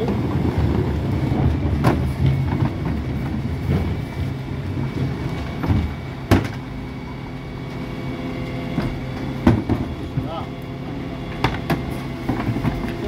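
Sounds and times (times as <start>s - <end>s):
truck engine humming: 0.0s - 13.0s
bin banging on lift: 5.6s - 6.7s.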